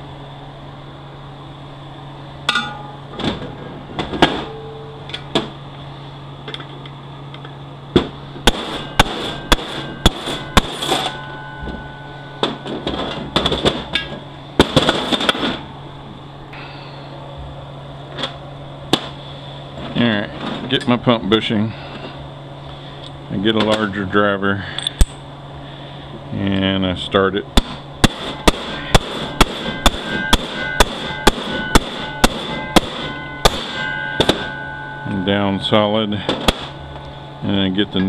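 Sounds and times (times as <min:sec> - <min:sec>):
hammer striking metal: 0:02.4 - 0:03.2, 0:04.0 - 0:05.6, 0:08.0 - 0:15.7, 0:27.6 - 0:38.0
metallic ring: 0:02.4 - 0:03.2, 0:04.1 - 0:06.0, 0:08.2 - 0:15.9, 0:28.0 - 0:38.0.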